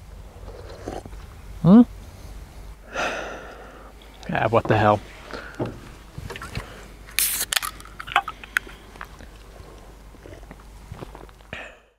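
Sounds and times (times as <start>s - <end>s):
can clicks and handling: 6.4s - 9.1s
can opening hiss: 7.1s - 8.7s.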